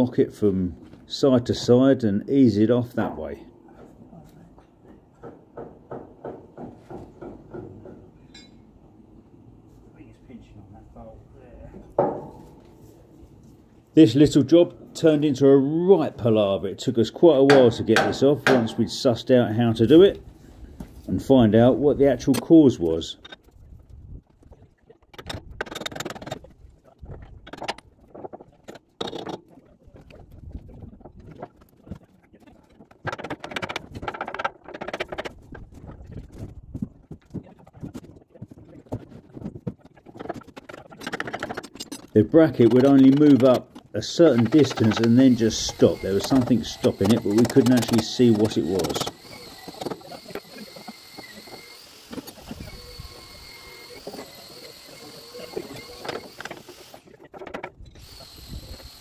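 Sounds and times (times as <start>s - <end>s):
metallic knocks of pry bar: 17.5s - 18.8s
pry bar scraping metal: 40.2s - 59.0s
angle grinders whining: 42.6s - 57.1s, 57.9s - 59.0s.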